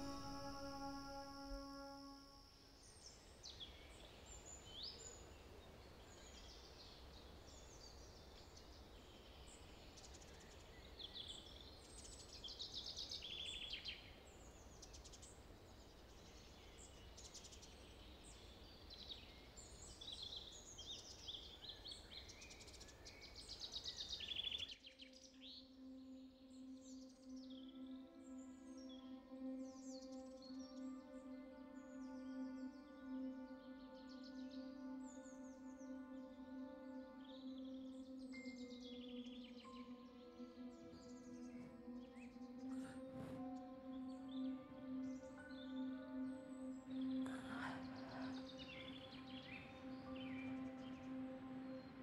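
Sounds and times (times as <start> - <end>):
held music note: 0.0 - 2.4
sustained low music chord: 0.0 - 2.4, 27.6 - 52.0
songbirds singing: 2.9 - 52.0.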